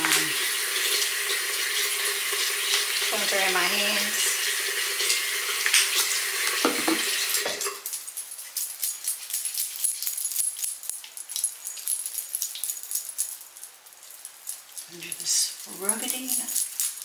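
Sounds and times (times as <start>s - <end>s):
bathroom faucet running: 0.0s - 10.0s.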